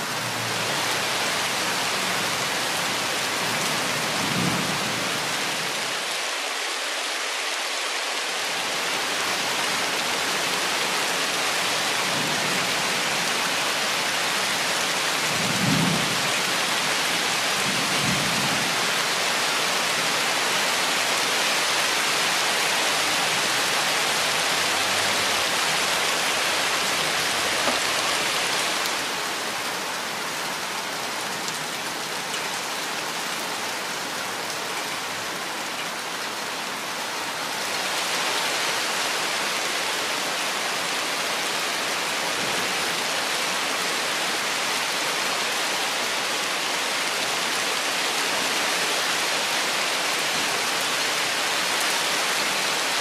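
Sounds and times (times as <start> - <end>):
heavy rain on foliage: 0.0 - 53.0.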